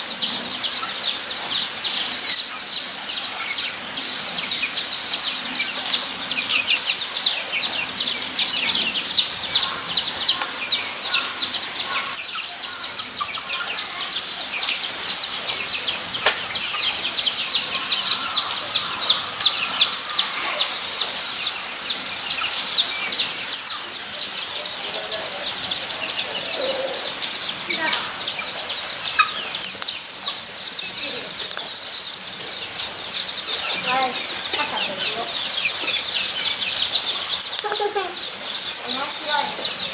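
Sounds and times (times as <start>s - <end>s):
guinea pigs squeaking: 0.2s - 31.8s.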